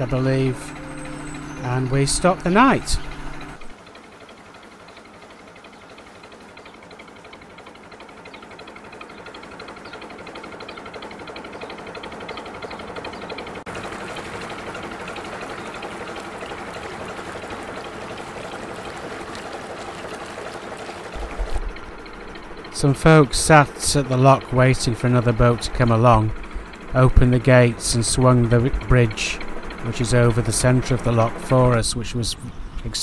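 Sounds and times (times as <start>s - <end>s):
rushing trickling water: 13.7s - 24.7s.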